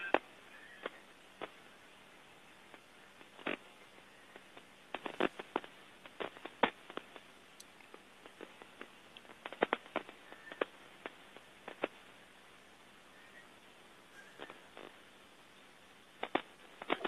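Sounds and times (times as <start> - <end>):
faint steady hiss: 0.0 - 17.0
raindrops tapping: 16.1 - 17.0.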